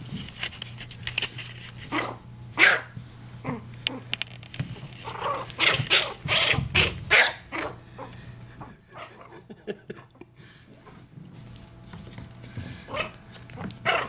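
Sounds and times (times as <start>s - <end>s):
puppy yipping: 1.9s - 2.9s, 5.1s - 7.8s.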